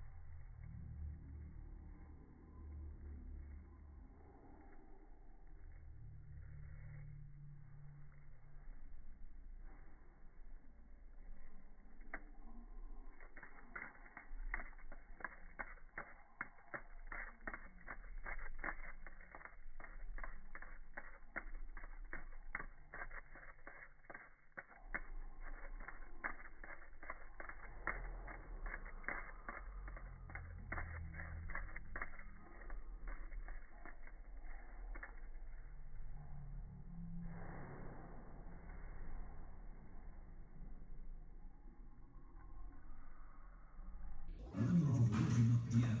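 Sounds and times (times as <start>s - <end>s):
low steady hum: 0.0s - 46.0s
wings clicking against glass: 11.9s - 35.2s.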